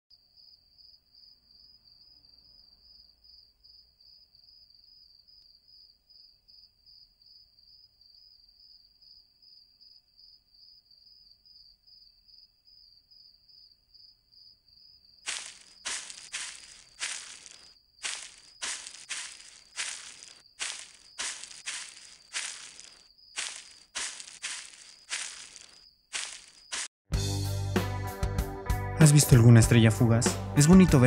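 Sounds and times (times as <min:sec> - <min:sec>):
crickets trilling: 0:11.5 - 0:26.9
crunching footsteps: 0:15.3 - 0:27.0.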